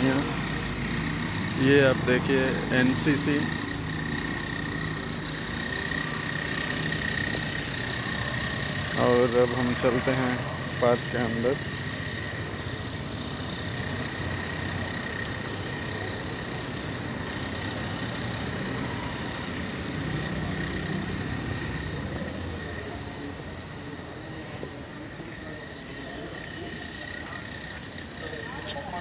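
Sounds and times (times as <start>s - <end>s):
road traffic rumble: 0.0s - 29.0s.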